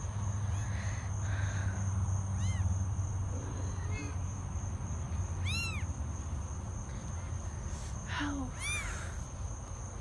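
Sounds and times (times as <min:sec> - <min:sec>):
cat meowing: 0:02.4 - 0:02.7, 0:05.4 - 0:05.9, 0:08.6 - 0:09.0.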